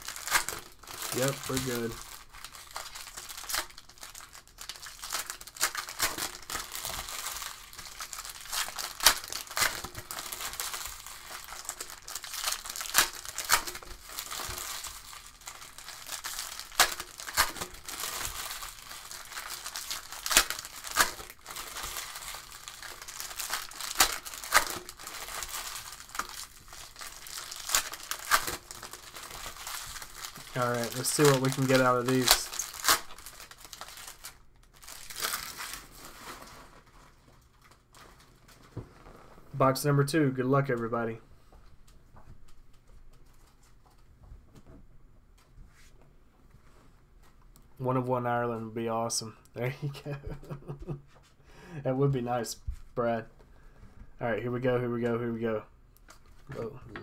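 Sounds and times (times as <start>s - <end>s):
card pack wrappers crinkling: 0.0s - 39.1s.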